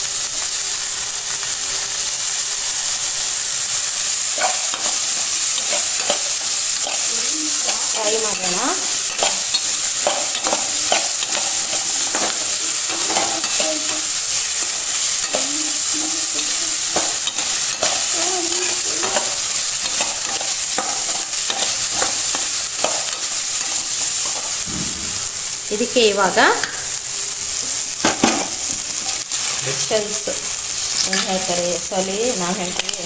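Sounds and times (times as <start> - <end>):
vegetables sizzling in oil: 0.0 - 33.0
metal spatula scraping pan: 4.4 - 23.2.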